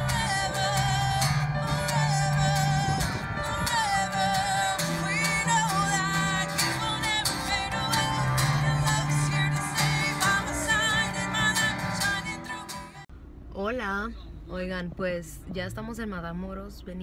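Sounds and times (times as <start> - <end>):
held low notes: 0.0 - 12.9
woman singing into microphone: 0.0 - 13.0
strummed acoustic guitars: 0.0 - 13.1.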